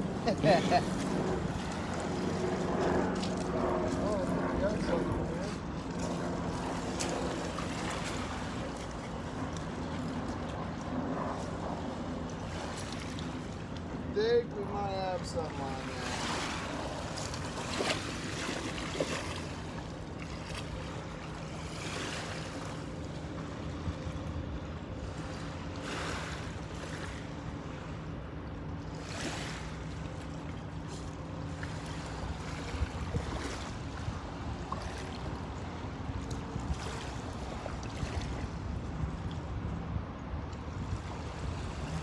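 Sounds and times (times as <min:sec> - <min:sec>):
river water lapping: 0:00.0 - 0:42.0
steady low hum: 0:00.0 - 0:42.0
wind on microphone: 0:32.0 - 0:42.0.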